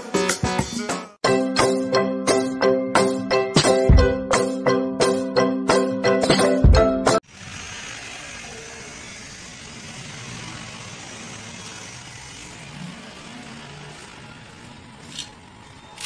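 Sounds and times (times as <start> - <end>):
gas burner flame rushing: 7.2 - 15.9.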